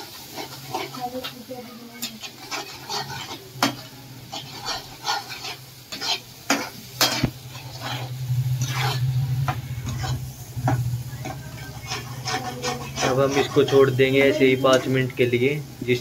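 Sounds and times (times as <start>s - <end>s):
masala sizzling: 0.0s - 16.0s
metal spoon scraping pan: 0.0s - 16.0s
low steady hum: 7.2s - 16.0s.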